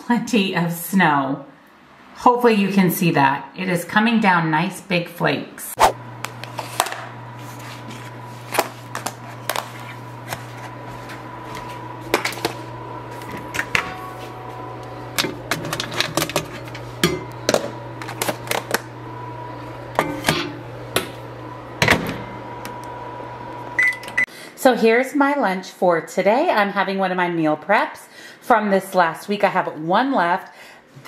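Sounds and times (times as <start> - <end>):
steady low hum: 5.8 - 24.3.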